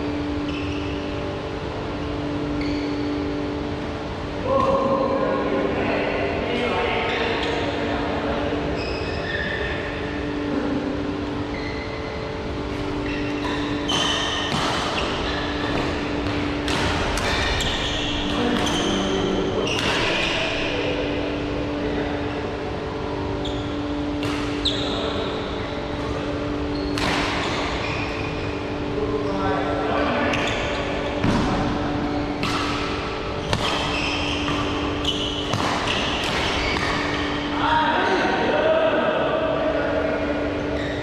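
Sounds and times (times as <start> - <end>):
shoes squeaking on court: 2.4 - 3.5, 8.7 - 10.2, 11.4 - 20.8, 23.3 - 28.6, 30.2 - 37.6, 40.7 - 41.0
rackets hitting shuttlecock: 13.2 - 20.6, 24.2 - 24.7, 26.9 - 27.8, 31.2 - 37.5.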